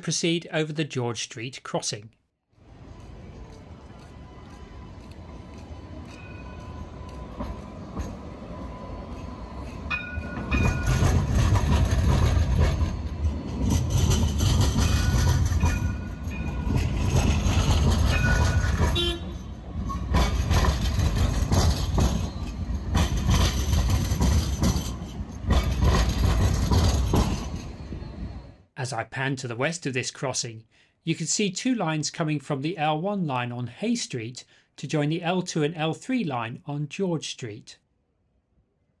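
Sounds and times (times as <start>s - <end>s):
tram rumbling: 2.5s - 28.7s
short high horn tones: 18.9s - 19.6s.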